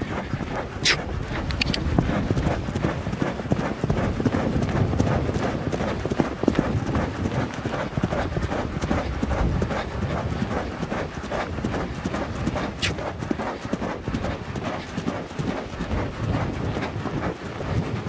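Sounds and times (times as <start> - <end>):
horse hoofbeats galloping: 0.0 - 18.0.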